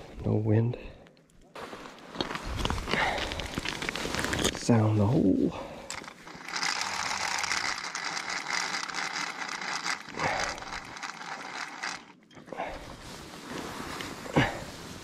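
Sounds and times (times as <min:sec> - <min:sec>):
spool spinning with whirring hiss: 0:05.9 - 0:12.2.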